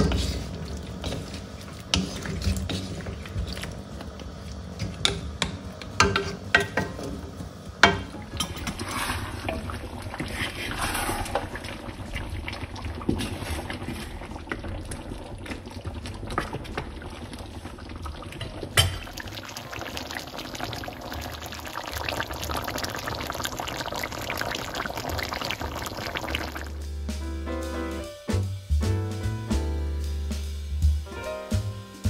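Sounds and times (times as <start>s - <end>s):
wooden spatula stirring: 0.0s - 17.6s
stew bubbling in a wok: 0.0s - 26.9s.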